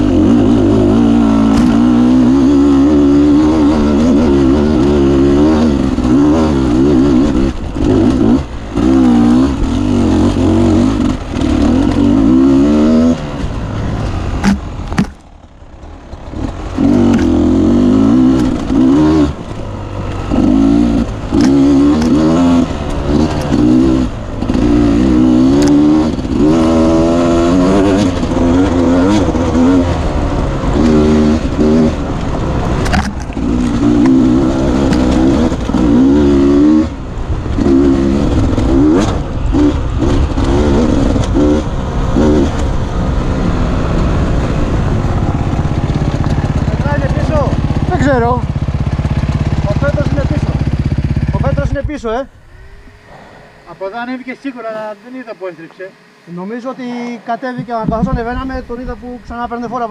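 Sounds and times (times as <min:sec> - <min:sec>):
motorcycle engine revving: 0:00.0 - 0:59.9
motorcycle knocking on rough ground: 0:14.0 - 0:17.4, 0:45.1 - 0:52.2, 0:57.5 - 0:59.0.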